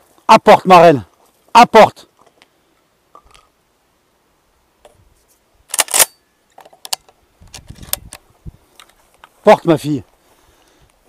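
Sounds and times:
shotgun clicking and clattering: 0:05.7 - 0:08.2.

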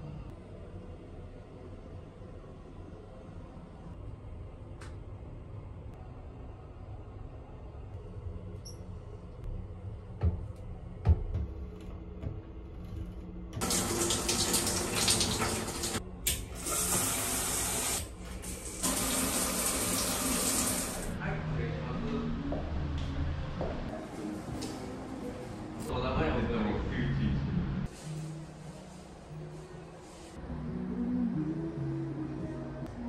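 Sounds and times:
shower water running: 0:13.6 - 0:21.2.

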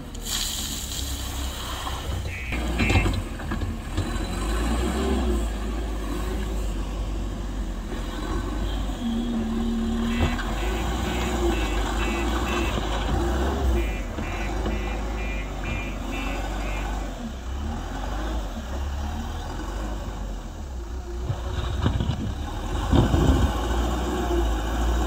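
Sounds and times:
diesel engine rumbling: 0:00.0 - 0:25.0
reversing alarm beeping: 0:02.2 - 0:03.2, 0:10.0 - 0:12.9, 0:13.6 - 0:17.1.

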